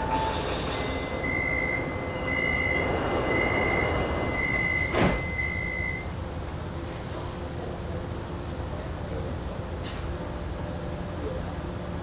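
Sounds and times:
train low hum: 0.0 - 12.0
high warning beeps: 1.0 - 6.1
train doors knocking shut: 2.3 - 5.4.

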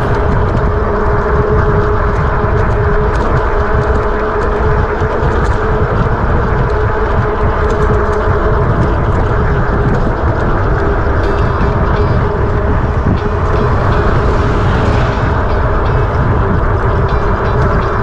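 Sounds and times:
faint steady hum: 0.0 - 18.0
wind noise: 0.0 - 18.0
road rumble: 11.0 - 18.0.

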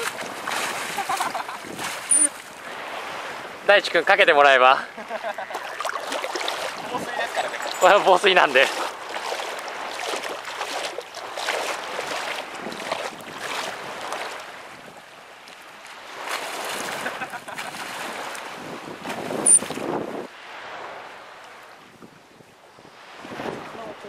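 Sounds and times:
wind on microphone: 0.0 - 3.6, 12.0 - 15.0, 17.7 - 21.2, 21.8 - 24.0
seawater splashing: 0.0 - 21.0
high-pitched blip: 19.5 - 19.7.

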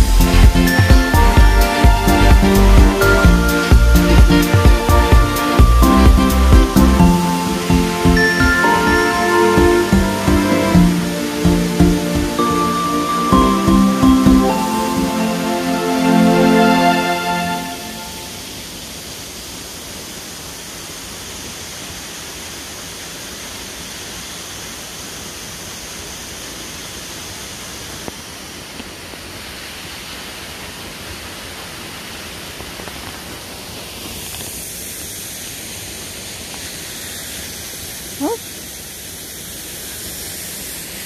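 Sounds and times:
background music: 0.0 - 18.3
water rushing: 0.0 - 41.0.

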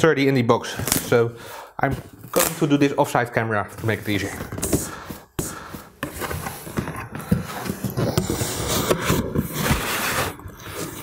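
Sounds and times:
cardboard box rustling and scraping: 3.8 - 11.0
foam rubbing: 3.8 - 11.0.

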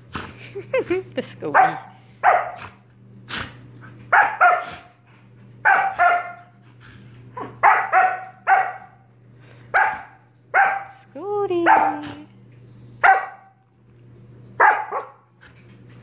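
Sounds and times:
dog play-barking: 1.5 - 6.6, 7.3 - 9.1, 9.7 - 11.0, 11.6 - 12.3, 13.0 - 13.6, 14.6 - 15.4.

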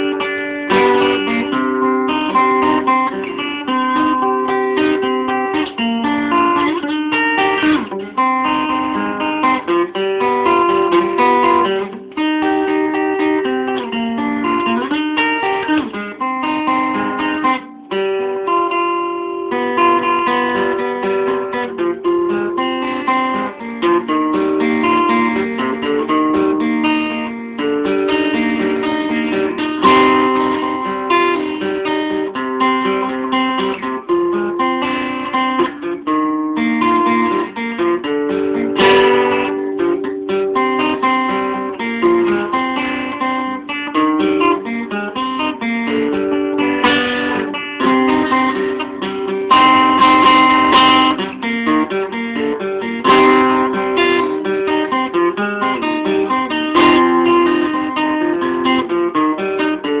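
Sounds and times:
acoustic guitar strumming: 0.0 - 60.0.

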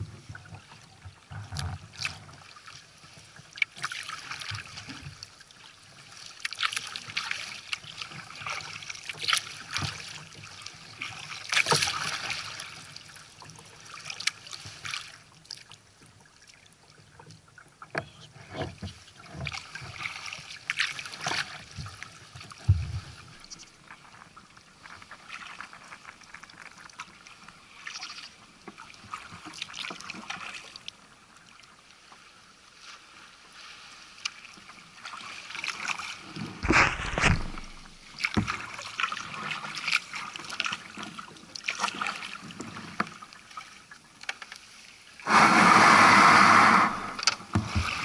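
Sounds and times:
kayak paddle strokes in water: 0.0 - 16.2, 16.8 - 48.0
dull thump: 36.6 - 38.5.

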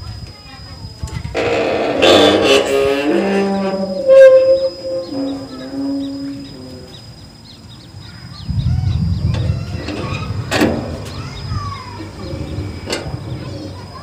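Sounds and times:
birds chirping faintly: 3.3 - 14.0.

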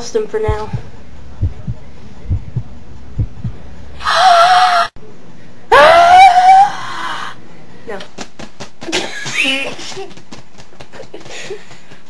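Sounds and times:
dull low thumps: 0.0 - 4.0
loud shrill screams: 4.0 - 5.0.

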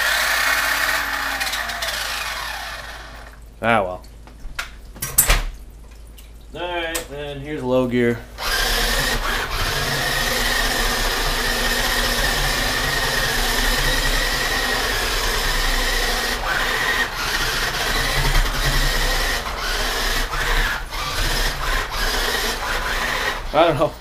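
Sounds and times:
electric motor whine: 0.0 - 3.4, 8.4 - 23.6.

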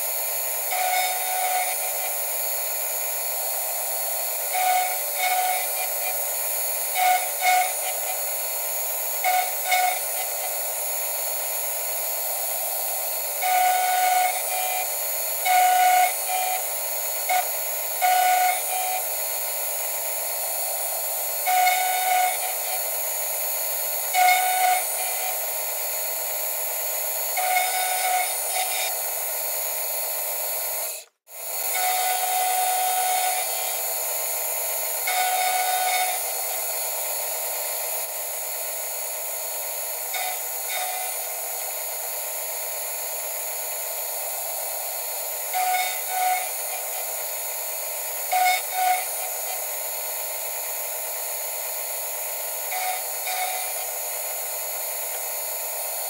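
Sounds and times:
milling cutter whining: 0.0 - 29.8, 30.4 - 38.2, 39.8 - 42.0, 44.2 - 56.0.

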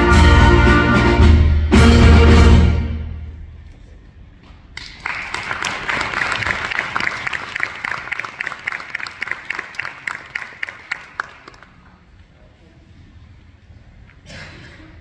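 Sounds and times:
audience applauding: 4.8 - 12.1.

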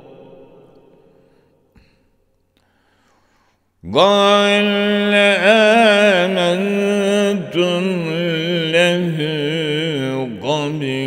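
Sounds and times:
man chanting melodically: 3.8 - 11.0.

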